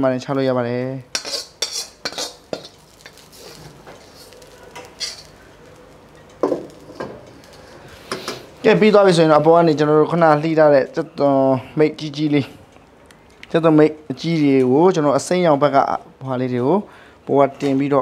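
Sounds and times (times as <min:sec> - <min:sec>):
faint sizzle: 0:00.0 - 0:17.3
metal ladle clanking on a wok: 0:04.7 - 0:05.3.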